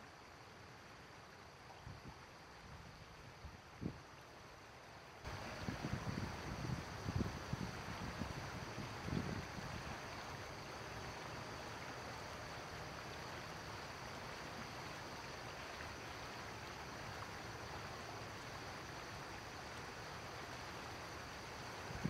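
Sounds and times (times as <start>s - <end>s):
river water rushing over rocks: 4.6s - 7.6s.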